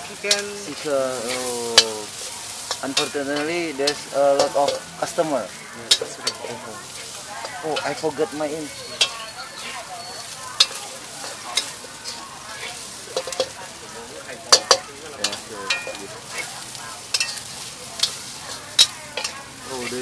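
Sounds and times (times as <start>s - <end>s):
rice sizzling in a wok: 0.0s - 20.0s
spatula clanking on wok: 0.0s - 20.0s.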